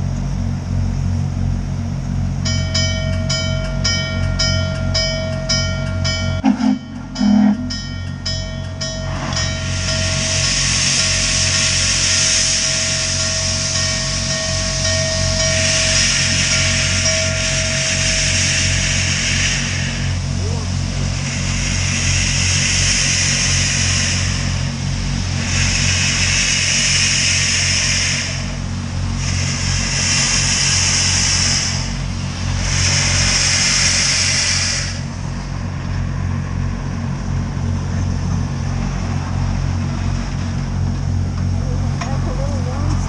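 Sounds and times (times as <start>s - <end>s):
steady low rumble: 0.0s - 43.0s
steam locomotive hissing blasts: 2.4s - 43.0s.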